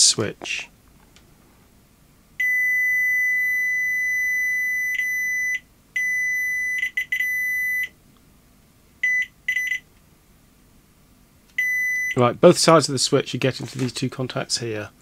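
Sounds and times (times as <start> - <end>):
multimeter continuity beeps: 2.4 - 8.0, 9.0 - 9.9, 11.6 - 12.2.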